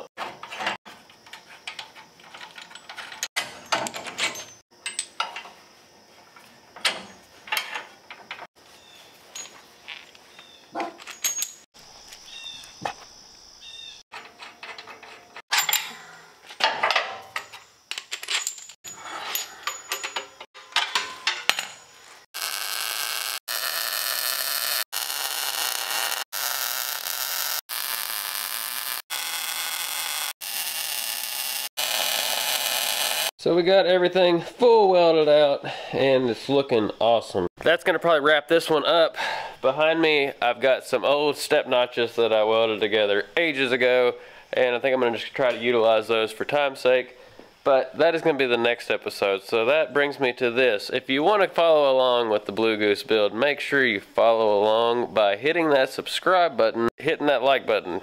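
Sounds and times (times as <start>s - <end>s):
steel parts clinking and clanking: 0.2s - 5.6s, 6.4s - 8.5s, 9.3s - 10.2s, 10.8s - 11.7s, 14.1s - 22.0s.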